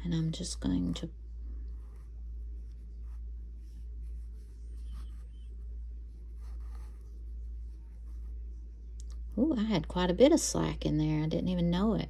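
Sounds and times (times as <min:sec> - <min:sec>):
yarn rubbing and rustling: 0:00.0 - 0:08.5
steady low hum: 0:00.0 - 0:12.0.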